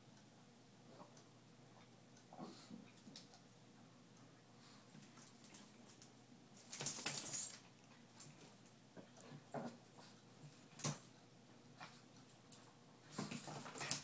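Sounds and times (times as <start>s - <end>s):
quiet dog sounds: 0.8s - 6.1s.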